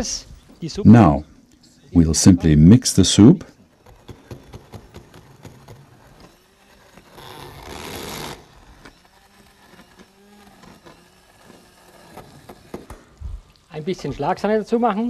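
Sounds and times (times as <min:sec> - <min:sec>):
immersion blender running: 0:03.7 - 0:14.6.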